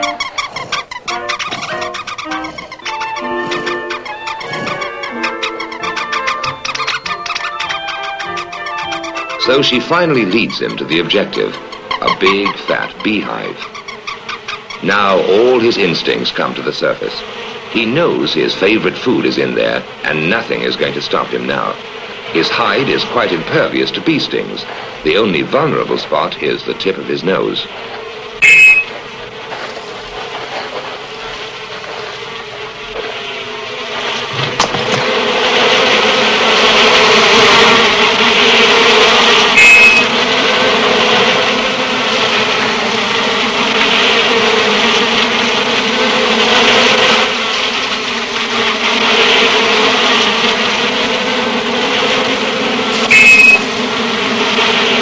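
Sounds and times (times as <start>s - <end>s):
high-pitched squeaks: 0.0s - 14.8s, 28.4s - 29.0s, 39.5s - 40.1s, 53.0s - 53.7s
bees buzzing: 0.0s - 55.0s.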